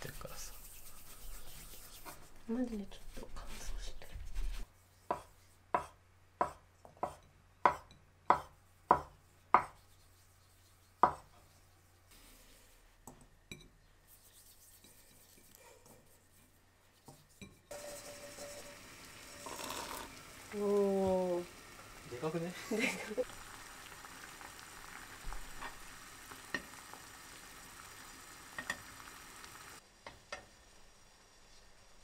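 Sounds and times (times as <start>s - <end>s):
knife chopping on wooden board: 5.1s - 9.8s, 11.0s - 11.3s
boiling water hissing and splashing: 17.7s - 32.0s.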